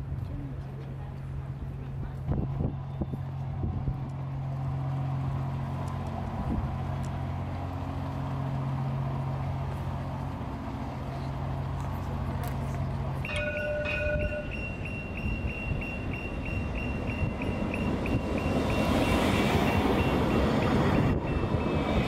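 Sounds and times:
low engine hum: 0.0s - 22.0s
high electronic beeping: 13.3s - 21.8s.

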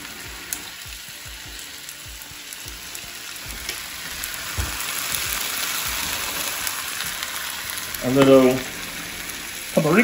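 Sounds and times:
potatoes sizzling in oil: 0.0s - 10.0s.

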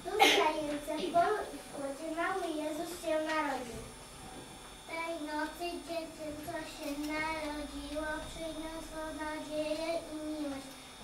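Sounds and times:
child singing: 4.9s - 10.7s.

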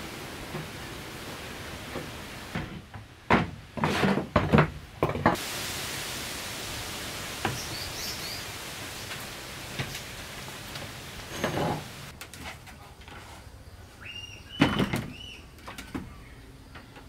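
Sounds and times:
steady hiss: 0.0s - 3.2s, 5.2s - 14.5s.

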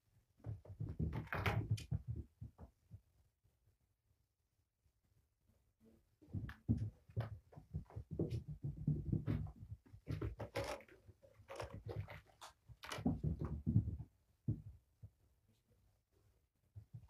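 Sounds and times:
paws thumping and scuffling: 6.3s - 10.9s, 11.5s - 15.2s.

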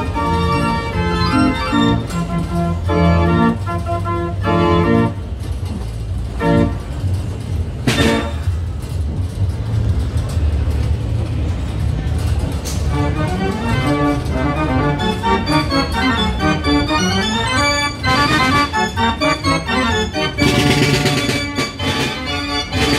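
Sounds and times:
carousel organ chords: 0.0s - 7.1s, 12.9s - 22.9s.

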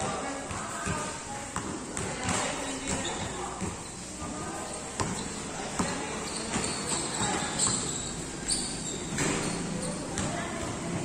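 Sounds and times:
basketball bouncing on court: 0.0s - 10.8s.

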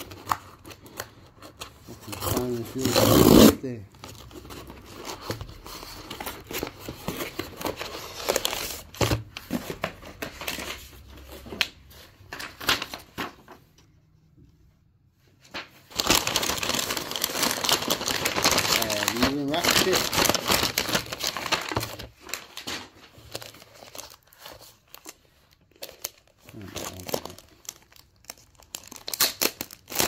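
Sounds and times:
wrapping paper crinkling: 15.5s - 30.0s.

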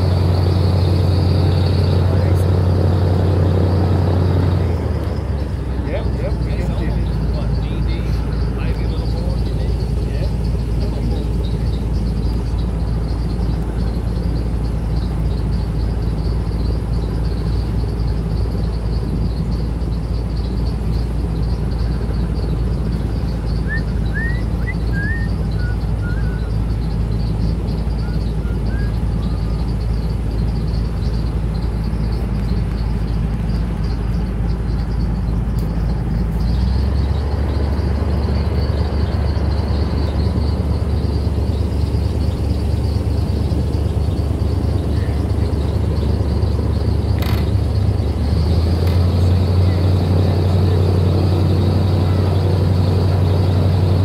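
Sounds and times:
airboat engine drone: 0.0s - 54.0s
bird chirping: 0.0s - 54.0s.

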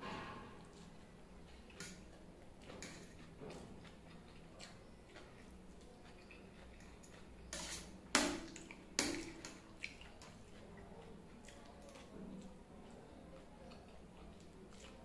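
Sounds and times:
eating sounds: 0.6s - 15.0s
fork scraping on steel plate: 7.4s - 8.0s.

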